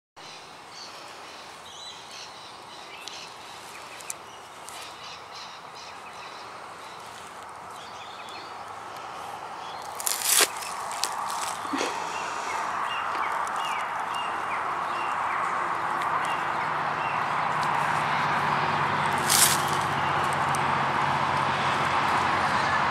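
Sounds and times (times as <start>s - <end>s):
steady background hiss: 0.2s - 9.8s
bird calls: 0.2s - 18.0s.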